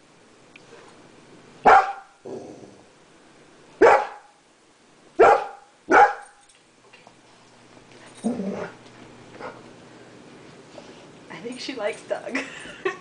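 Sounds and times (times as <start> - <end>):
dog barking: 1.6 - 2.2, 3.8 - 4.3, 5.2 - 6.4.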